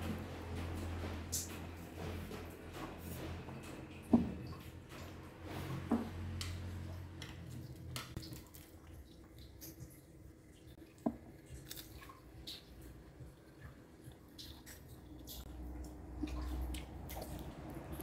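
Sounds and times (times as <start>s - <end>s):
quiet chewing: 7.2s - 18.0s
crispy fish crackling: 7.3s - 18.0s.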